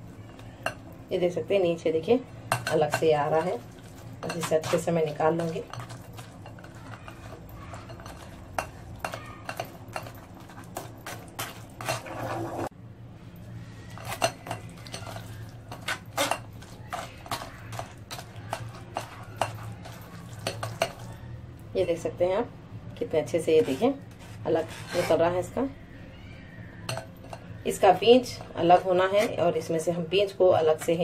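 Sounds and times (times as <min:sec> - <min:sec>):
spoon scraping metal strainer: 0:23.6 - 0:25.4.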